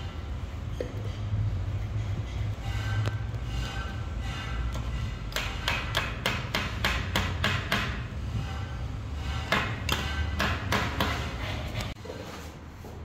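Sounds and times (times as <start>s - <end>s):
hammer striking plastic pipe: 4.7s - 8.1s, 9.4s - 11.3s.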